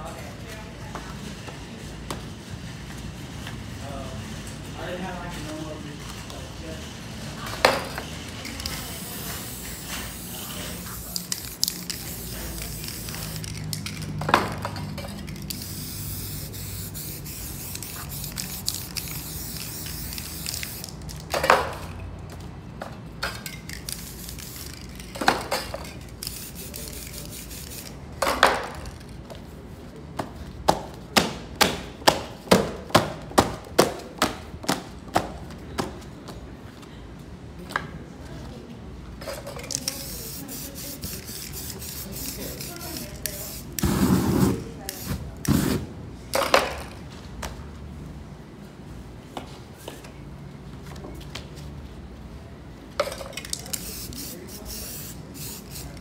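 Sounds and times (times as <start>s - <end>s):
spray paint can hissing: 8.4s - 21.3s, 23.4s - 25.2s, 25.8s - 28.0s, 39.6s - 45.8s, 53.5s - 56.0s.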